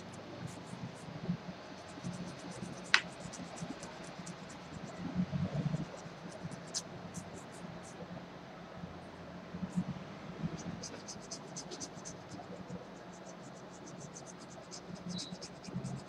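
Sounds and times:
manicure tool scraping fingernails: 0:01.9 - 0:04.8, 0:13.5 - 0:16.0
sharp click: 0:02.4 - 0:04.2.

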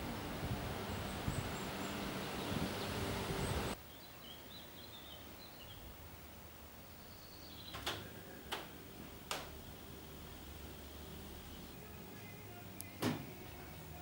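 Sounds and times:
wind buffeting: 0:00.0 - 0:03.8
small birds chirping: 0:00.7 - 0:06.0, 0:06.8 - 0:08.5.

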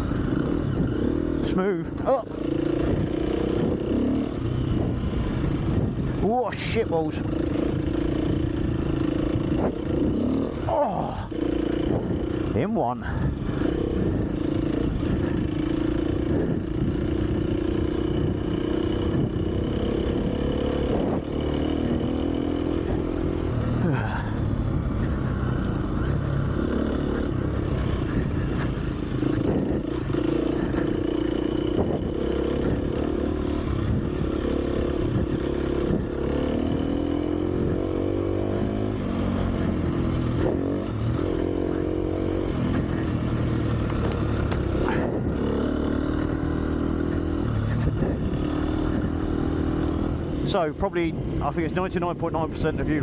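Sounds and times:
dirt bike engine revving: 0:00.0 - 0:52.8.

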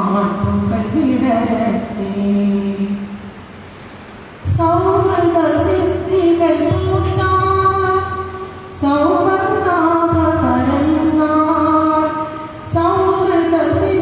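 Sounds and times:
woman singing into a microphone: 0:04.5 - 0:14.0.

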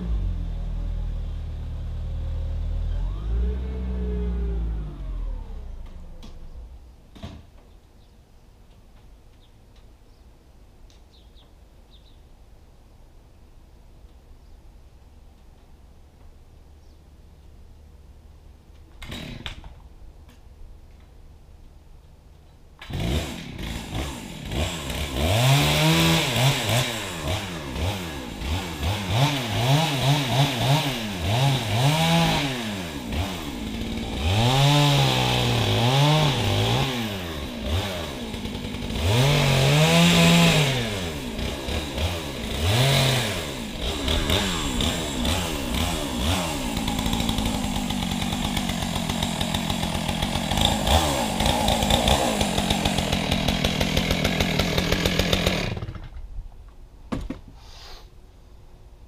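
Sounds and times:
chainsaw revving and idling: 0:00.0 - 0:06.5, 0:19.0 - 0:19.6, 0:22.8 - 0:56.2.

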